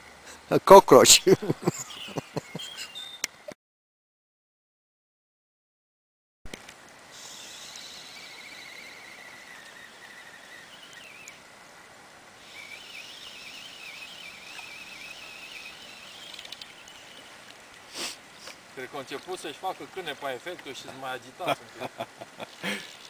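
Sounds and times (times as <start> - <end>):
steady background hiss: 0.0 - 3.5, 6.5 - 23.0
high wavering whistling: 7.2 - 11.4, 12.4 - 17.4.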